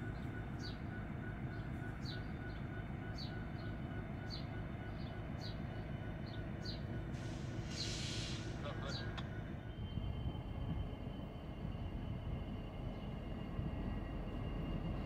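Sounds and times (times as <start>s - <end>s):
diesel locomotive idling: 0.0s - 15.0s.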